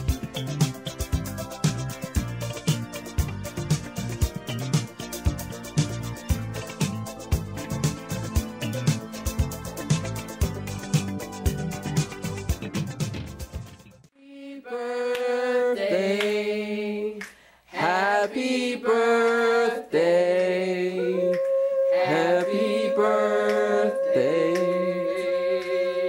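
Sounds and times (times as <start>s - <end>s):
voices singing long notes: 17.8s - 26.0s.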